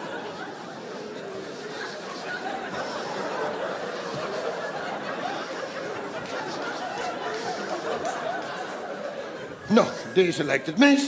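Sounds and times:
audience laughing: 0:00.0 - 0:10.8.

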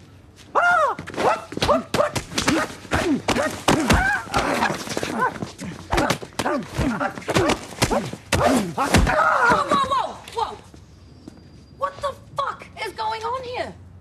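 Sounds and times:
slaps and knocks of punches: 0:01.1 - 0:05.3, 0:05.9 - 0:09.9.

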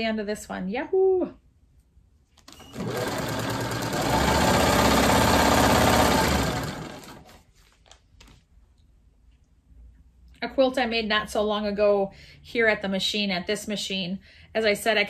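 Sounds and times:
sewing machine stitching: 0:02.4 - 0:07.4.

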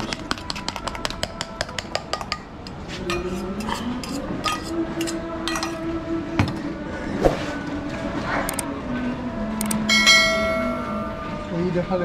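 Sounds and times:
low drone rising in pitch: 0:03.1 - 0:12.0.

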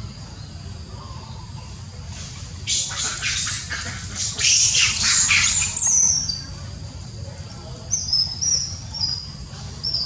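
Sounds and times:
monkey shrill squeals: 0:02.7 - 0:06.4.

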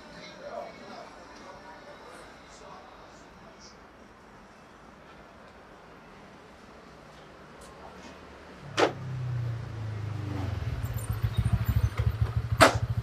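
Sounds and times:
small motorbike engine running: 0:10.2 - 0:13.0
sharp knocks: 0:12.0 - 0:12.9.

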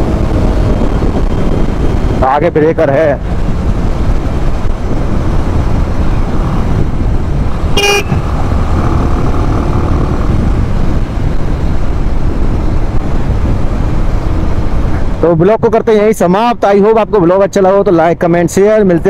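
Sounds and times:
road noise: 0:00.0 - 0:19.0
wind noise: 0:00.0 - 0:19.0
motorcycle engine running: 0:03.2 - 0:15.0
vehicle horn toot: 0:07.7 - 0:08.2.

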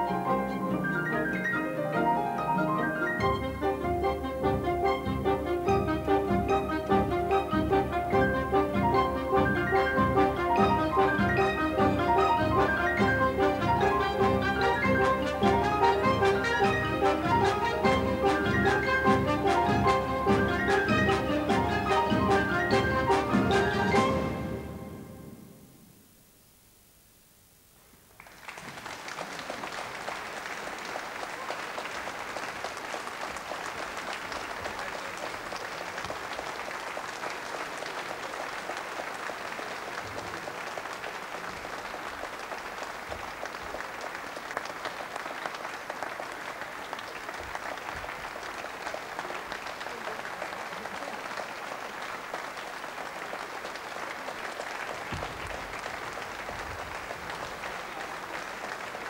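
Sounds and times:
large audience applauding: 0:00.0 - 0:24.9, 0:28.1 - 0:59.0
music: 0:00.0 - 0:25.9.

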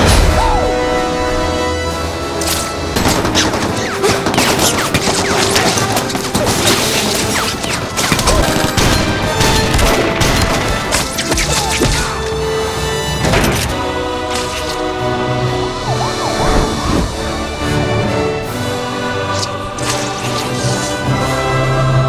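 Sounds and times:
action film music: 0:00.0 - 0:22.0
gunshots: 0:03.0 - 0:12.2.

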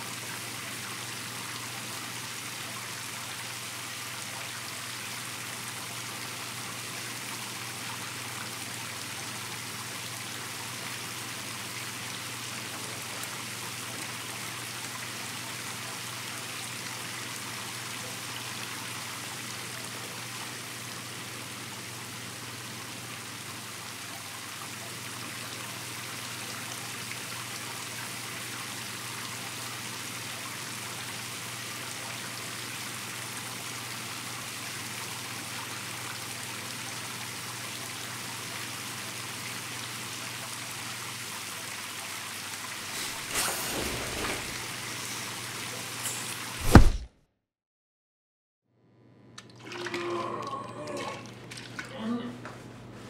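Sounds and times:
shower running: 0:41.9 - 0:46.6.

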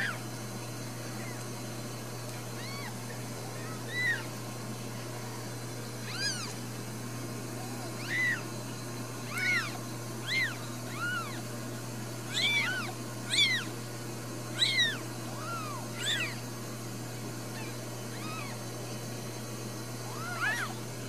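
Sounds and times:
steady low hum: 0:00.0 - 0:21.0
kittens mewing: 0:02.4 - 0:04.4, 0:06.0 - 0:06.6, 0:07.3 - 0:19.0, 0:20.0 - 0:20.9.

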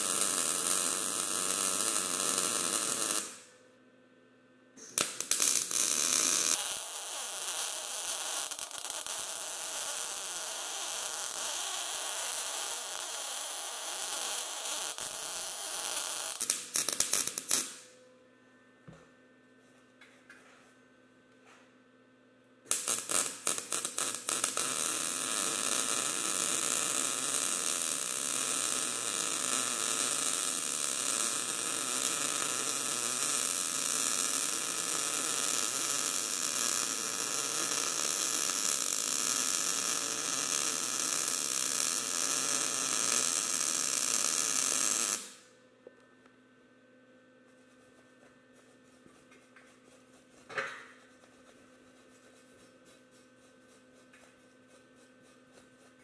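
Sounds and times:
welding arc: 0:00.0 - 0:03.5, 0:04.8 - 0:17.9, 0:22.7 - 0:45.5
faint steady hum: 0:45.3 - 0:56.0.

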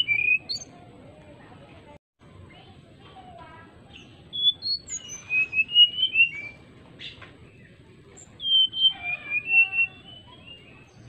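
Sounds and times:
bird singing whistled notes: 0:00.0 - 0:00.7, 0:03.9 - 0:11.0.

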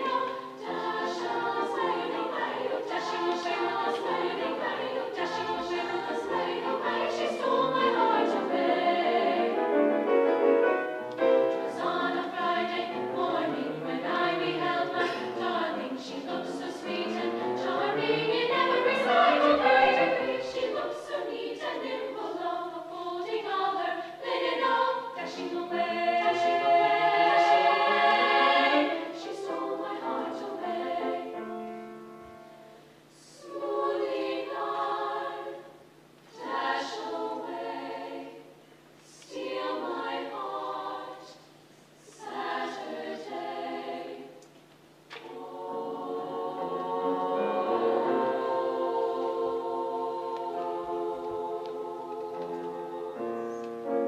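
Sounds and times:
women's choir singing: 0:00.0 - 0:10.0, 0:11.2 - 0:31.9, 0:33.1 - 0:44.5, 0:45.1 - 0:54.0
piano accompaniment: 0:07.9 - 0:11.8.

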